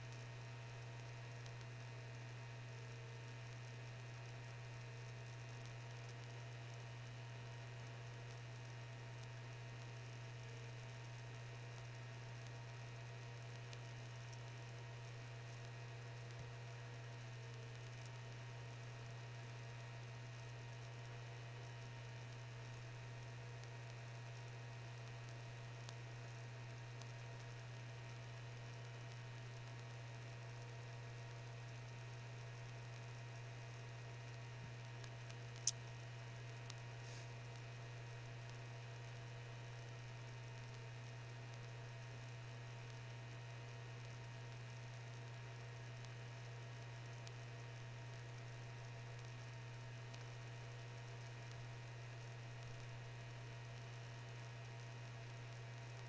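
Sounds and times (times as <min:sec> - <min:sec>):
faint tick: 0:00.0 - 0:56.0
low electrical hum: 0:00.0 - 0:56.0
faint hiss: 0:37.0 - 0:37.6.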